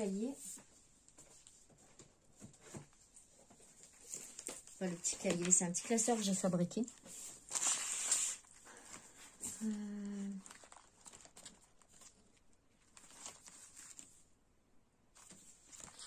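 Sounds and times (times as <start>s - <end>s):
pages rustling: 0.4s - 14.3s, 15.2s - 16.0s
woman humming: 9.5s - 10.4s.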